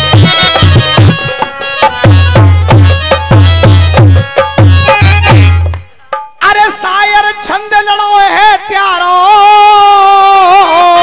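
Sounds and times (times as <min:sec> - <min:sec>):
folk drums playing: 0:00.0 - 0:07.0.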